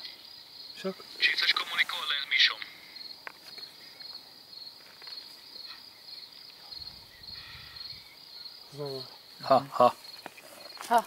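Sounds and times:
crickets chirping: 0.0s - 11.0s
person's voice close to microphone: 0.9s - 2.7s.

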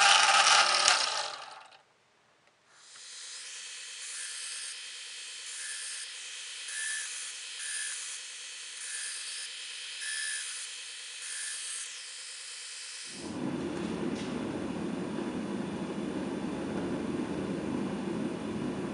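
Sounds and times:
belt grinder hissing: 0.0s - 1.8s, 2.7s - 13.2s
blade grinding whine: 0.0s - 1.8s, 2.8s - 13.4s.

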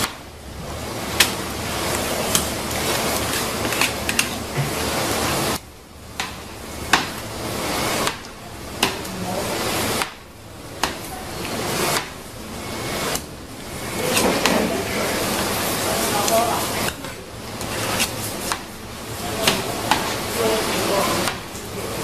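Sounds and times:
noisy hiss: 0.0s - 22.0s
spatula scraping metal mould: 2.2s - 4.8s.

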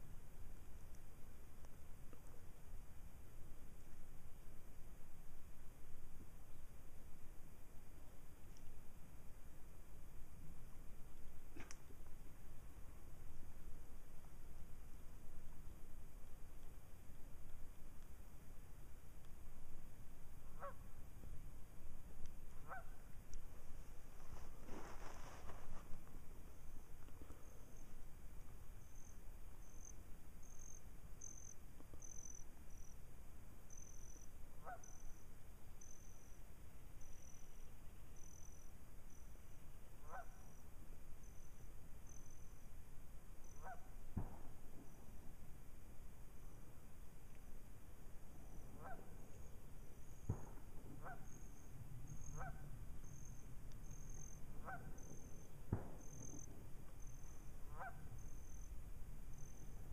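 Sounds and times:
insect chirping: 22.6s - 44.0s, 48.4s - 59.9s.

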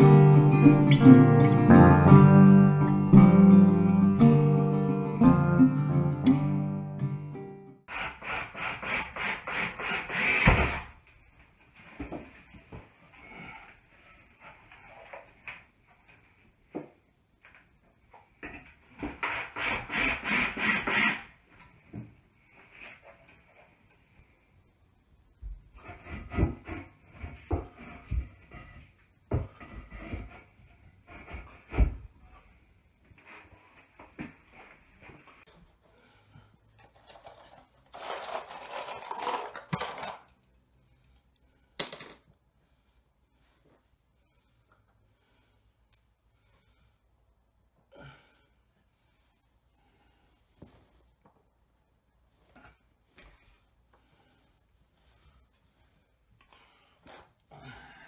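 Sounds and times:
cordless drill surging: 19.2s - 21.3s
screws rattling in cardboard box: 37.0s - 40.4s.

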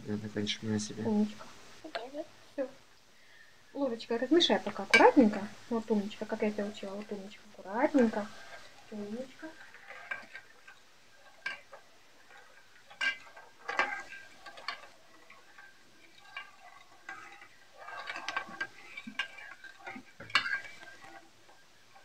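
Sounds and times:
metal spoon scraping enamel bowl: 7.8s - 21.2s.

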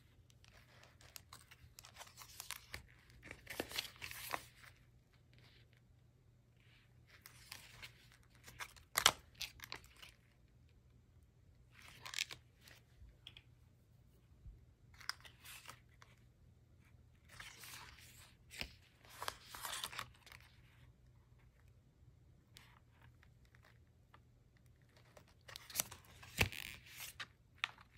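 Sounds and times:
stiff paper pages rustling: 0.4s - 4.8s, 17.2s - 20.6s.

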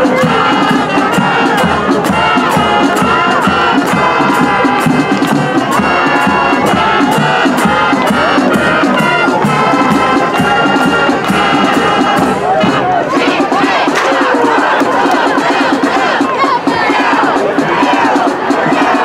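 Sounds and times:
marching band playing: 0.0s - 19.0s.

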